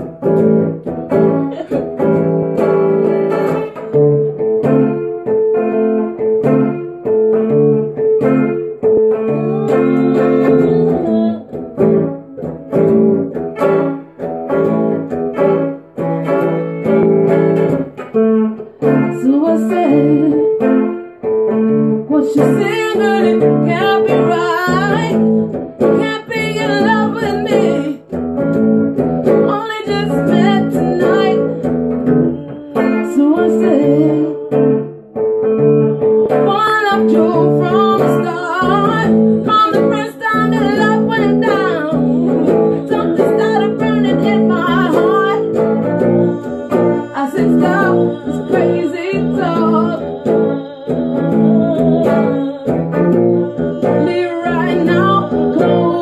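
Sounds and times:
electric guitar chords: 0.0 - 56.0
woman singing: 0.0 - 56.0.

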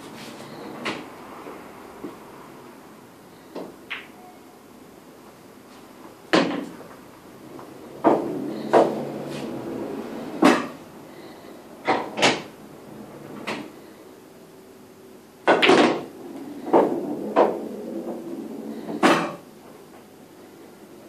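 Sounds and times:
pool balls clacking: 3.5 - 4.2, 6.0 - 10.8, 11.8 - 12.6, 15.4 - 19.8
rolling balls rumble: 6.4 - 10.8, 15.4 - 19.9.

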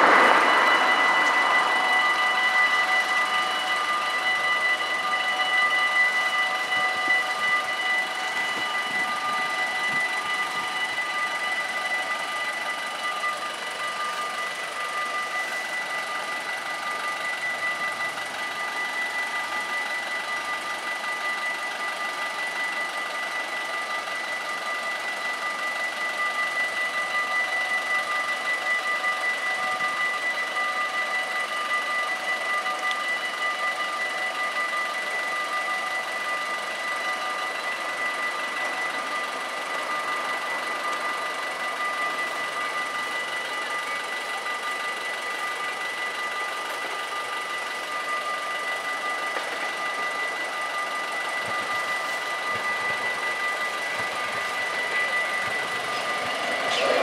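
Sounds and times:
broad rushing noise: 0.0 - 4.5
level crossing bells ringing: 48.2 - 57.0.

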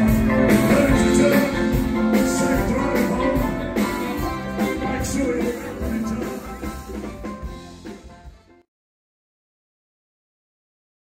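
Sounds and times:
live band playing: 0.0 - 8.7.

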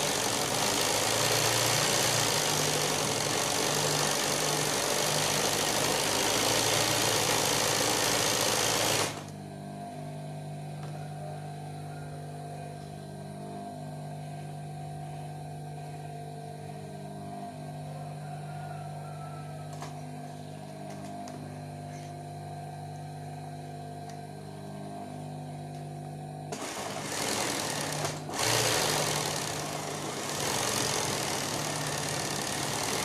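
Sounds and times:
sewing machine stitching fast: 0.0 - 9.3, 26.5 - 33.0
motor hum: 0.0 - 33.0.

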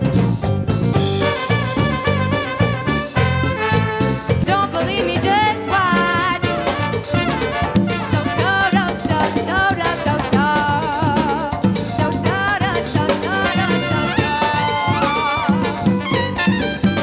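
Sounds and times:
salsa music with brass: 0.0 - 17.0
person singing: 8.2 - 15.9.

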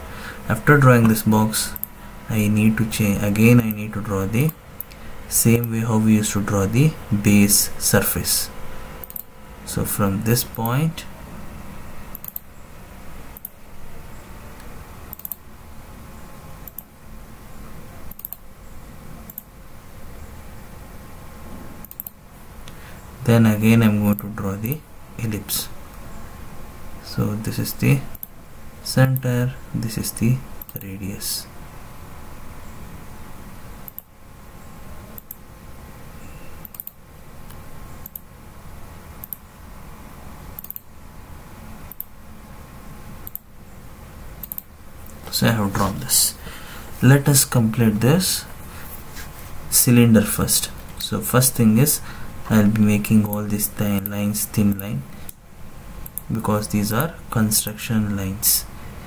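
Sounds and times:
steady low hum: 0.0 - 59.0
computer mouse clicking: 1.0 - 2.0, 9.0 - 9.3, 12.1 - 12.5, 13.4 - 13.6, 15.1 - 15.4, 16.6 - 16.9, 18.1 - 18.4, 19.3 - 19.5, 21.8 - 22.2, 33.9 - 34.1, 35.2 - 35.4, 36.6 - 38.3, 39.2 - 39.4, 40.6 - 40.9, 41.9 - 42.1, 43.2 - 43.5, 44.4 - 45.2.

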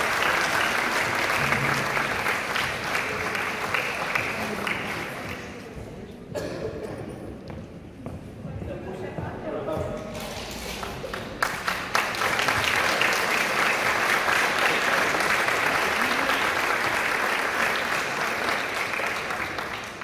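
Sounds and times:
audience applauding: 0.0 - 5.7, 10.4 - 20.0.

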